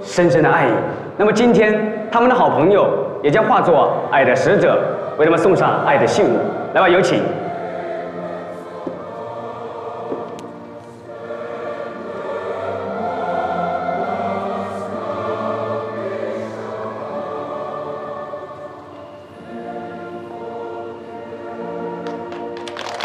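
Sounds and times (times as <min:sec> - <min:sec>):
choral music with held chords: 0:00.0 - 0:23.0.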